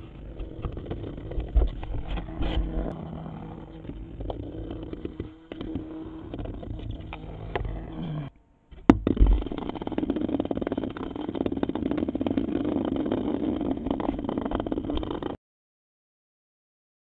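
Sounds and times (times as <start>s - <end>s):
vibration motor buzzing hum: 0.0s - 15.4s
toy tapping on cardboard: 8.8s - 12.3s.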